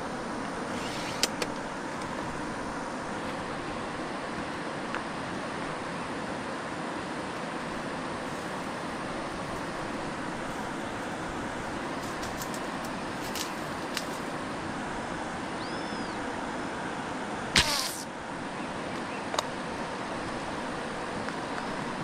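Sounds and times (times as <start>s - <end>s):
fishing line whizzing off reel: 17.6s - 18.1s
slingshot bands snapping: 17.6s - 18.1s.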